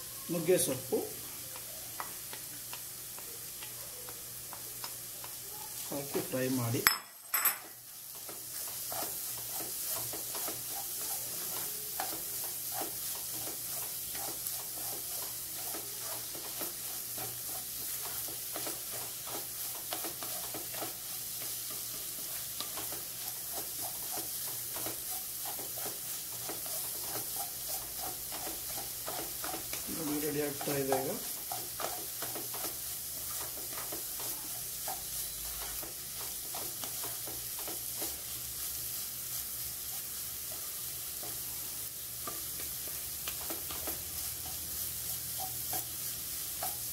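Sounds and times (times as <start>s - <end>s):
frying sizzle: 0.0s - 46.9s
wooden spatula scraping pan: 8.1s - 38.3s.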